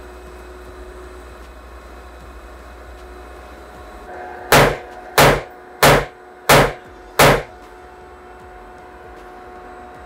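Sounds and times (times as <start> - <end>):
rifle gunshots: 4.5 - 7.5.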